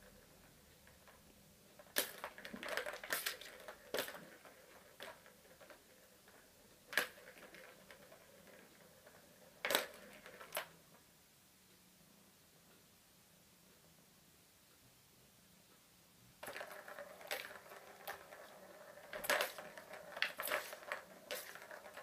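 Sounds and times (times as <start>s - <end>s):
plastic balls clattering on toy track: 0.1s - 10.8s, 16.4s - 22.0s.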